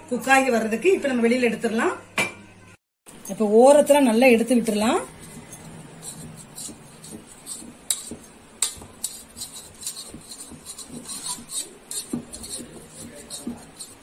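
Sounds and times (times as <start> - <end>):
utensil scraping metal tin: 4.5 - 14.0.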